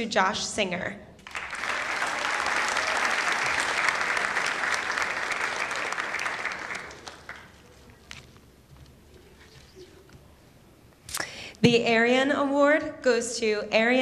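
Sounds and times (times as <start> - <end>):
audience applauding: 1.2 - 8.1.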